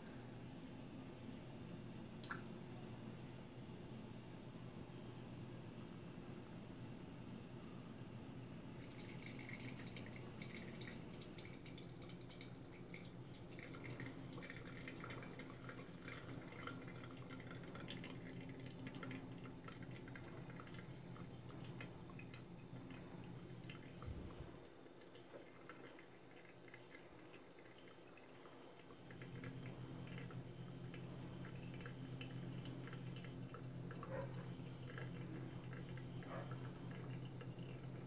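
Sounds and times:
steady low hum: 0.0s - 38.0s
coffee dripping: 2.2s - 2.5s, 8.6s - 38.0s.

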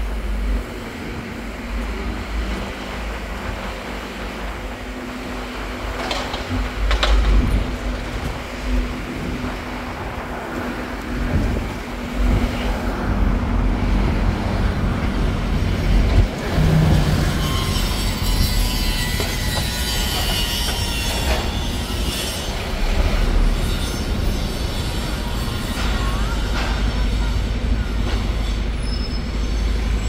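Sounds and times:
bus engine rumble: 0.0s - 18.8s, 22.4s - 30.0s
road and wind noise: 0.0s - 30.0s
thin high squeal: 28.4s - 30.0s.

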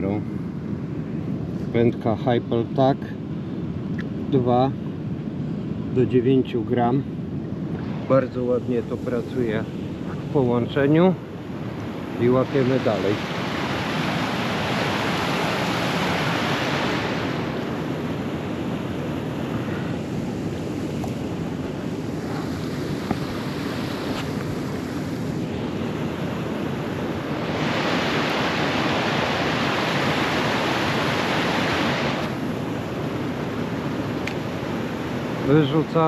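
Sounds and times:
wind on microphone: 2.8s - 36.0s
river water rushing: 7.9s - 36.0s.

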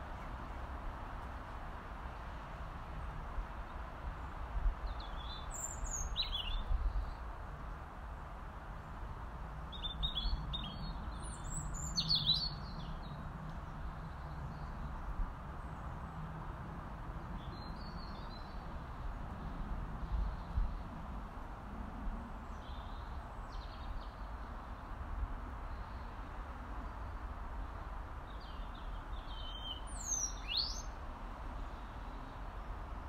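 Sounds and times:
robin calling: 9.7s - 13.1s, 28.3s - 31.0s.

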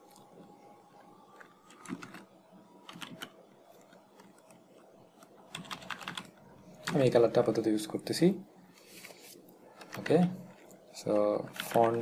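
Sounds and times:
computer keyboard keystrokes: 1.4s - 4.6s, 5.2s - 7.0s, 9.8s - 10.4s, 11.5s - 12.0s.

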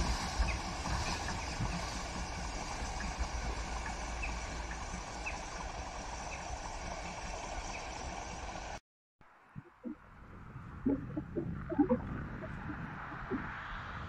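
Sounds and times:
steam locomotive chugging: 0.0s - 8.8s.

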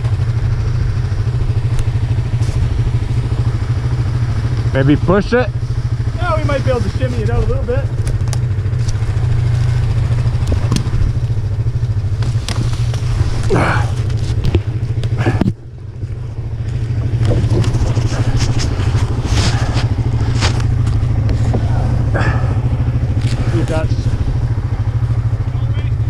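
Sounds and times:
atv engine idling: 0.0s - 26.0s
knocks and clatter: 7.4s - 15.6s, 16.6s - 22.4s.

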